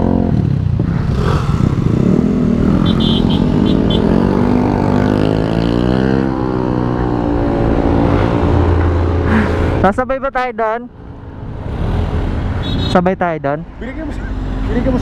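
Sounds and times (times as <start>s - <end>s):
motorcycle engine running: 0.0s - 8.3s.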